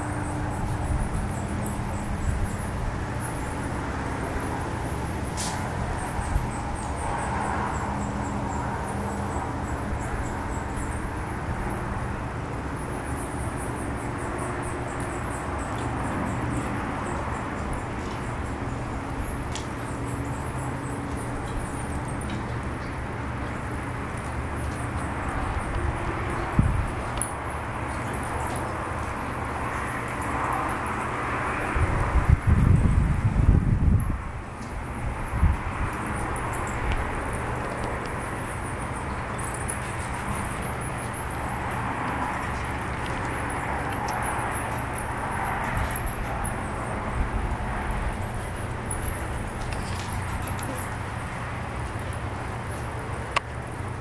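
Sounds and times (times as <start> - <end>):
bats squeaking: 36.0 - 52.9.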